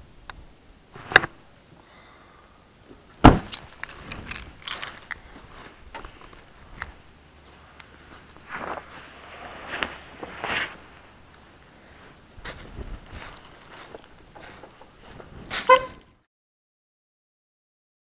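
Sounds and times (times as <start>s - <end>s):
car door slamming: 3.2s - 3.6s
keys clicking and rattling: 3.5s - 5.2s, 13.2s - 14.0s.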